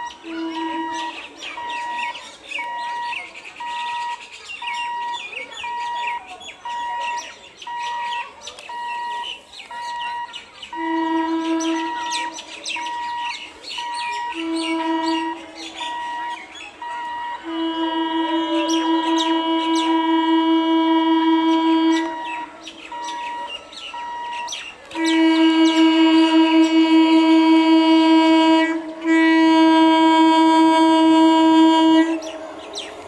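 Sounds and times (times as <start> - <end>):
low hooting tone: 0.0 - 6.0, 9.8 - 33.0
electronic beeping: 0.0 - 11.1, 11.7 - 17.4, 22.0 - 24.5
birds chirping: 0.0 - 33.0.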